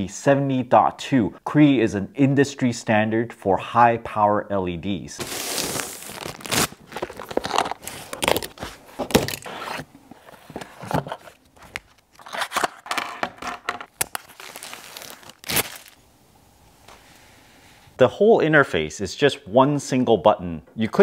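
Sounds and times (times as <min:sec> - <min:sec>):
cardboard packaging rustling: 0:05.2 - 0:13.0, 0:13.9 - 0:16.0.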